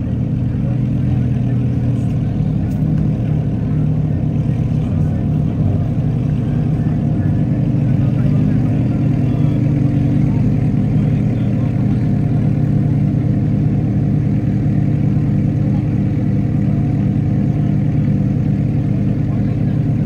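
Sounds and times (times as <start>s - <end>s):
sports car engine idling: 0.0s - 20.0s.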